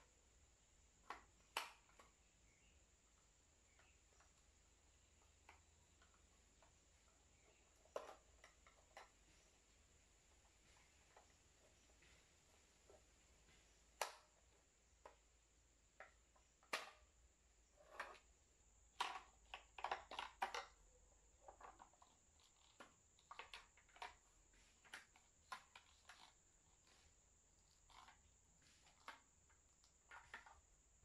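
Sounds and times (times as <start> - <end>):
plastic clicks and knocks: 1.0 - 2.3, 5.2 - 9.5, 18.9 - 20.8, 21.4 - 27.0, 27.8 - 30.6.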